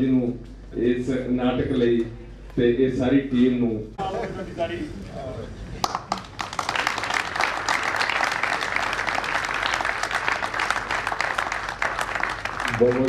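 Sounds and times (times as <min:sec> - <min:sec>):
crowd clapping: 0:05.8 - 0:13.0.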